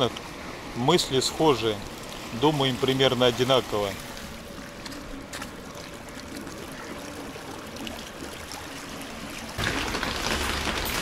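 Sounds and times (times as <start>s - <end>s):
small waves washing over stones: 8.2s - 11.0s.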